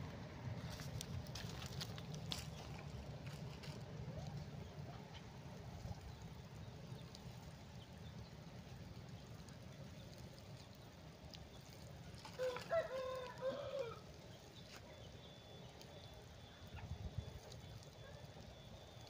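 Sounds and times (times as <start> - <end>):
low background rumble: 0.0 - 19.0
rooster crowing: 12.3 - 14.1.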